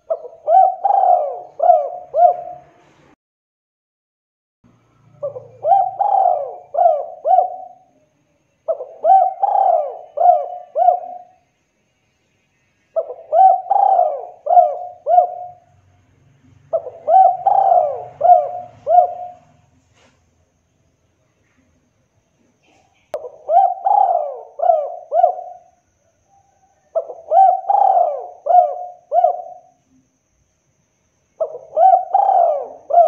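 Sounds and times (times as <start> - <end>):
dove cooing: 0.0 - 2.8, 5.2 - 7.9, 8.7 - 11.4, 13.0 - 15.7, 16.7 - 19.7, 23.2 - 29.8, 31.4 - 33.0.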